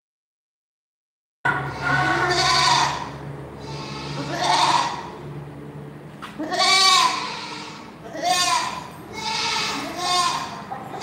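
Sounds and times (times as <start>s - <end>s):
goat bleating: 1.5s - 5.2s, 6.2s - 11.0s.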